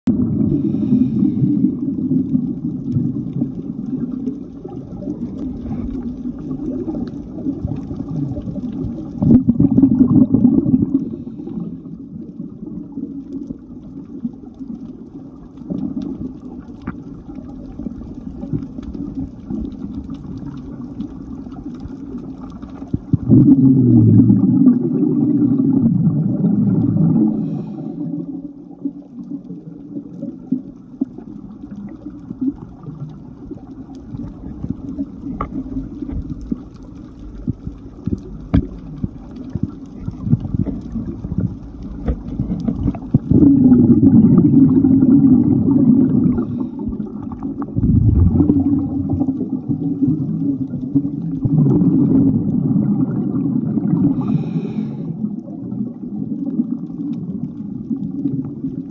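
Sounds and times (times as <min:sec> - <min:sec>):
underwater bubbles gurgling: 0:00.1 - 0:58.9
sharp underwater clicks: 0:29.2 - 0:43.8.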